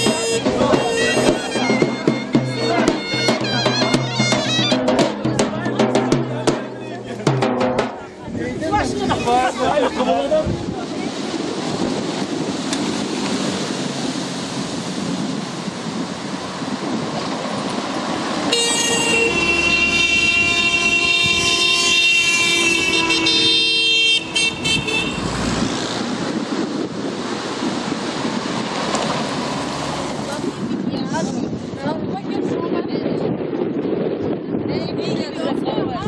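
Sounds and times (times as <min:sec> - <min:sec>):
car horns blaring: 0:00.0 - 0:05.1, 0:18.4 - 0:25.9.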